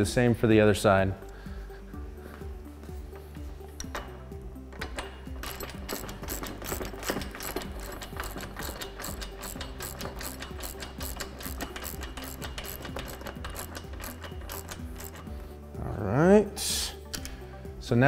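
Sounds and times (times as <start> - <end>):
background music: 0.0 - 18.0
socket ratchet clicking: 4.7 - 15.4.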